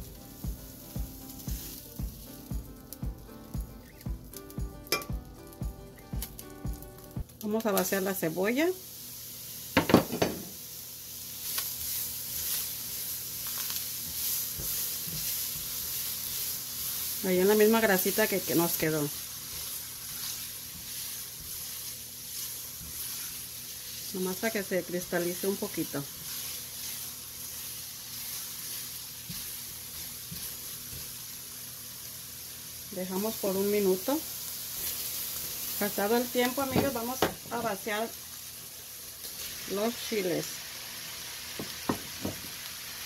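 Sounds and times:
onions sizzling in hot fat: 0.0 - 43.0
spatula stirring: 11.5 - 31.2
spatula stirring and knocking pot: 14.0 - 15.9, 19.5 - 23.2.

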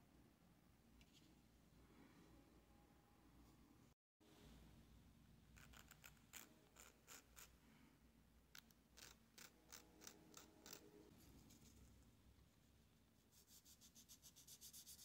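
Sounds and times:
nail file scraping plastic: 8.6 - 10.9.

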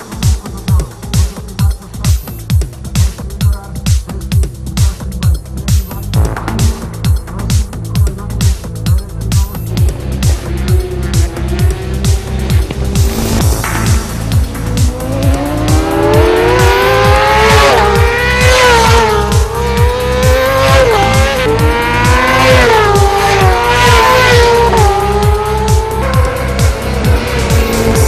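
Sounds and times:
dance music with kick drum: 0.0 - 28.0
motorcycle engine at high revs: 9.8 - 28.0.

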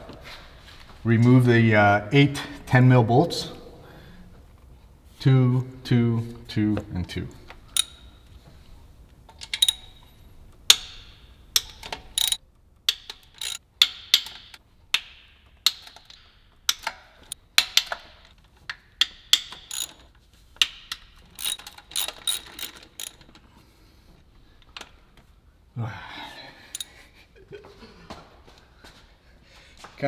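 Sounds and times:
socket ratchet clicking: 7.7 - 8.2, 9.4 - 23.4.

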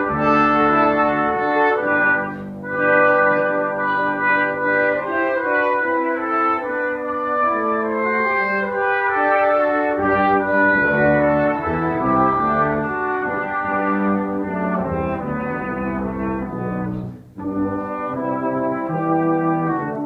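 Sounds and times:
brass ensemble playing: 0.0 - 20.0.

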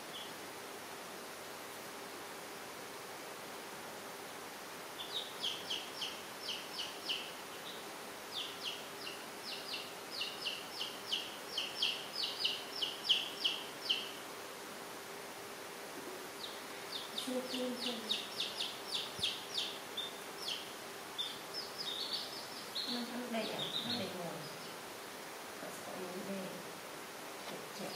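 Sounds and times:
faint low hum: 0.0 - 27.9
chicks peeping: 5.0 - 14.2, 16.0 - 24.9.

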